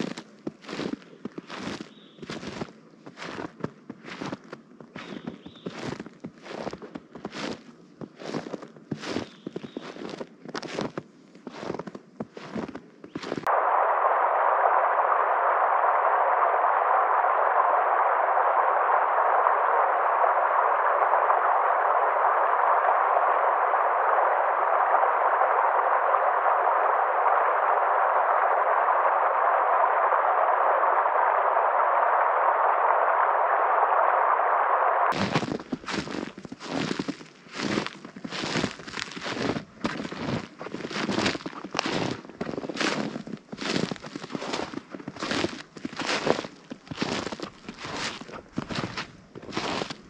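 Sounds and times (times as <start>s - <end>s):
footsteps crunching in snow: 0.0s - 13.5s, 35.1s - 50.0s
loud static hiss: 0.0s - 50.0s.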